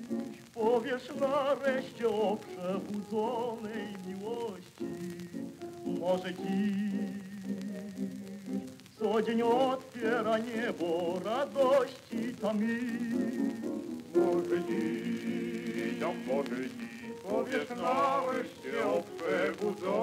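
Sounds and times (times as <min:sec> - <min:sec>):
piano accompaniment: 0:00.0 - 0:20.0
male choir singing in harmony: 0:00.6 - 0:05.2, 0:09.0 - 0:20.0.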